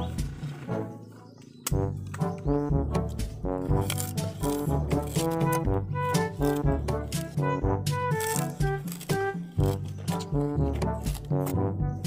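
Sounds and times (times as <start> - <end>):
bouncy music with beat: 5.5 - 9.3.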